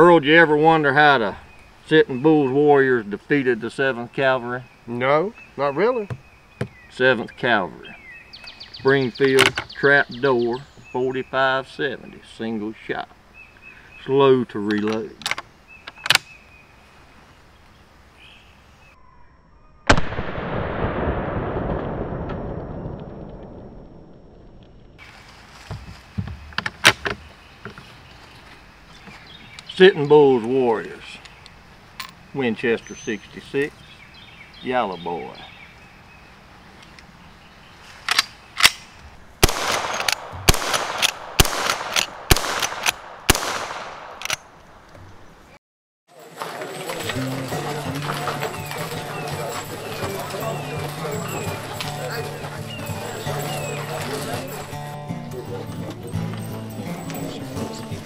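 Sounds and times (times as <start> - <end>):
rifle shots with echo: 19.9 - 22.5, 39.4 - 44.3
gunshot bang with rumble: 19.9 - 24.4, 39.4 - 44.2.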